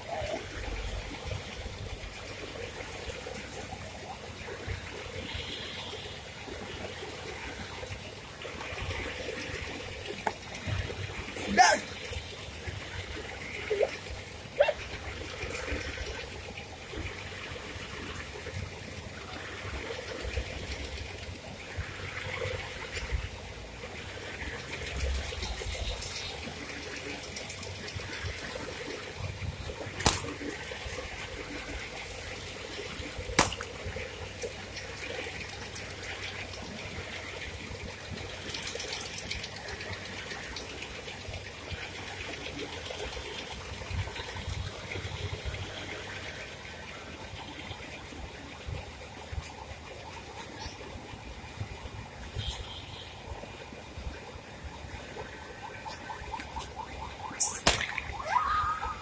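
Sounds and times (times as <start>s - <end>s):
balloons bursting: 30.0s - 30.3s, 33.4s - 33.7s.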